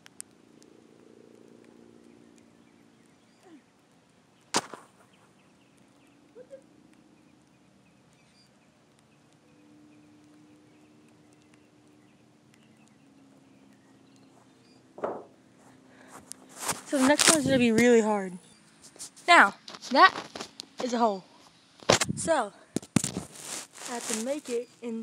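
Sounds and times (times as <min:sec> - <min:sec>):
football smacking near microphone: 0:04.5 - 0:05.0, 0:15.0 - 0:15.4.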